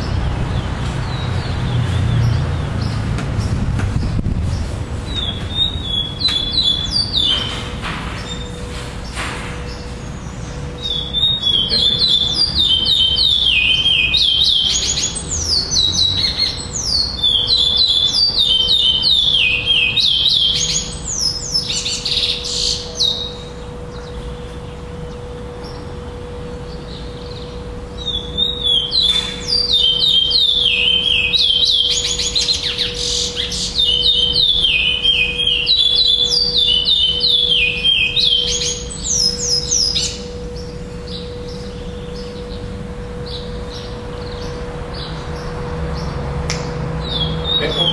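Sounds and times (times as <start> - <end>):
bird singing whistled notes: 5.1 - 7.6, 9.7 - 24.3, 26.7 - 42.6.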